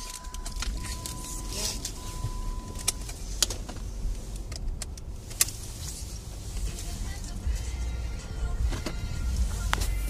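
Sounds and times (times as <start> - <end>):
car cabin rumble: 0.0 - 10.0
sharp clicks: 4.4 - 5.6.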